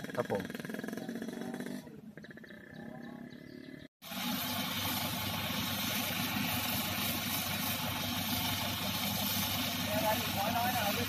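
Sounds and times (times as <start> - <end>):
hose spraying water: 4.0 - 11.0
truck engine running: 4.0 - 11.0.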